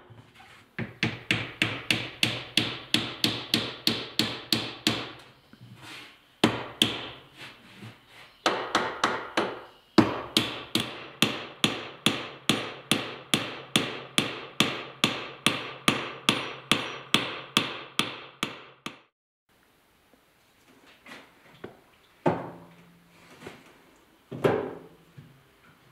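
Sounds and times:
hammer tapping wooden wedge: 0:00.8 - 0:05.2, 0:08.5 - 0:19.1.

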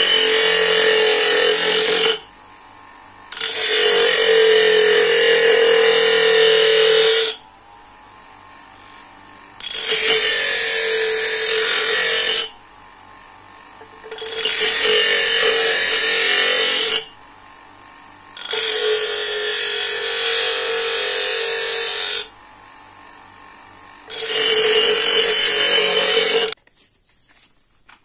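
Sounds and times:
grinder wheel grinding wood: 0:00.0 - 0:02.3, 0:03.2 - 0:07.4, 0:08.7 - 0:12.6, 0:13.6 - 0:17.2, 0:18.2 - 0:26.6.

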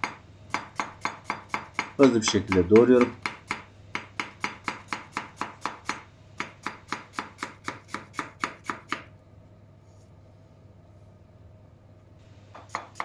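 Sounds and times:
knife chopping on wooden board: 0:00.0 - 0:09.1, 0:12.6 - 0:13.0.

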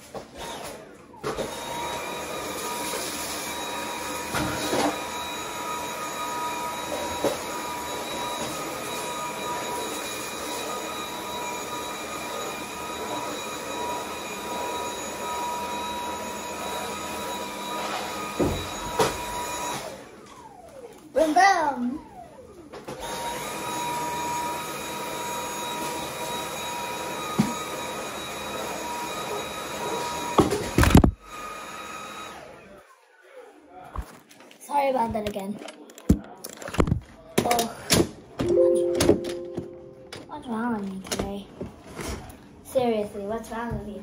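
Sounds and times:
vacuum cleaner motor whine: 0:00.1 - 0:32.7.

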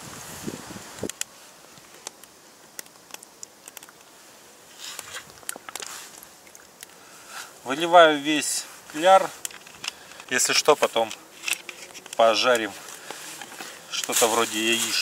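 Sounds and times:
light clicks and crackles: 0:00.9 - 0:07.9, 0:08.8 - 0:15.0.

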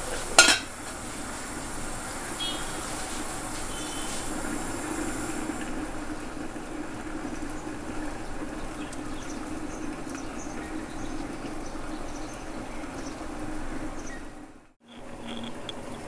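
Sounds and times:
gas stove burner hissing: 0:00.0 - 0:10.0.

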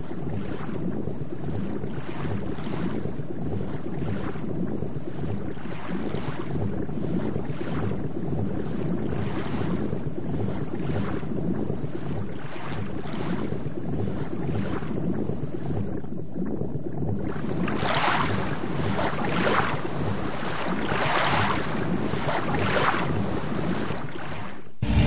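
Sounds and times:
rushing water: 0:17.4 - 0:25.0
low rumble: 0:24.8 - 0:25.0.

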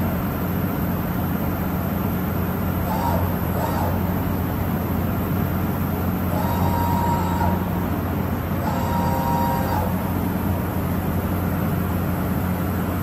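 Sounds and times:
steady machine hum: 0:00.0 - 0:13.0
machine axis drive whines: 0:02.7 - 0:11.0.

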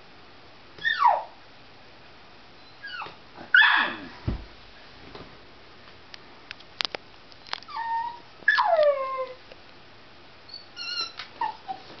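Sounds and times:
dog whining: 0:00.8 - 0:01.4, 0:02.6 - 0:04.1, 0:07.7 - 0:09.4, 0:10.5 - 0:12.0.

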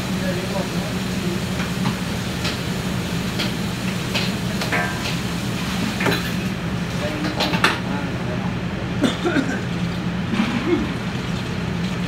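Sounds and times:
water sizzling on hot griddle: 0:00.0 - 0:07.5, 0:10.4 - 0:12.0
exhaust hood fan hum: 0:00.0 - 0:12.0.

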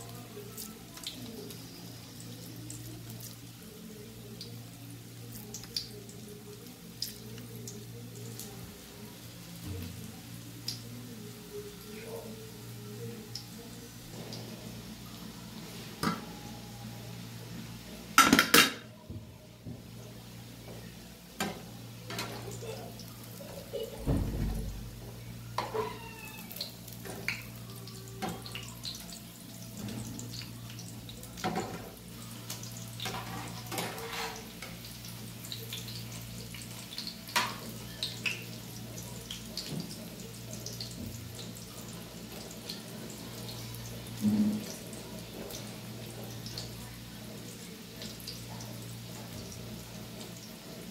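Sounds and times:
patties sizzling in oil: 0:00.0 - 0:50.9
metal spatula scraping pan: 0:33.0 - 0:34.5.

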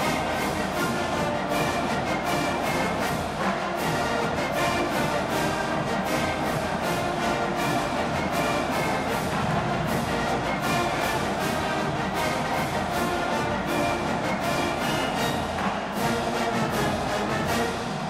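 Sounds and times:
marching band playing: 0:00.0 - 0:18.0.

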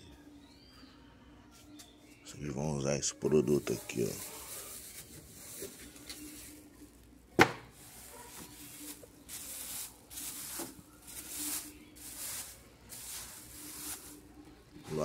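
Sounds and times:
plastic garbage bag rustling: 0:03.5 - 0:07.0, 0:07.7 - 0:15.0.

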